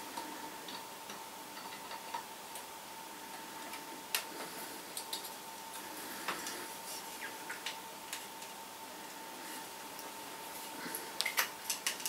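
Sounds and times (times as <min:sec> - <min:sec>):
faint steady whine: 0:00.0 - 0:12.0.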